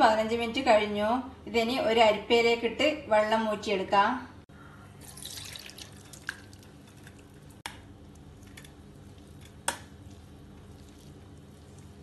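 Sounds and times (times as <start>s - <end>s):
water trickling and dripping: 5.0s - 6.8s.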